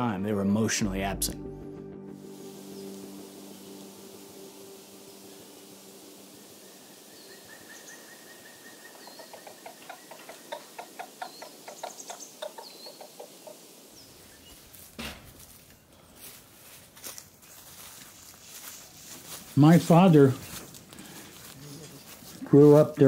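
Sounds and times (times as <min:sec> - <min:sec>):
rustling in dry leaves: 0:02.2 - 0:09.3, 0:09.9 - 0:23.0
small birds chirping: 0:02.4 - 0:14.8
chickens clucking: 0:08.9 - 0:13.7
thump: 0:15.0 - 0:15.4.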